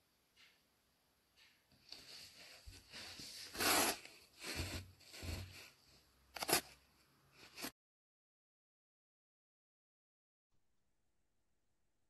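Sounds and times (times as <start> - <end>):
clothing rustling on microphone: 1.9 - 3.6.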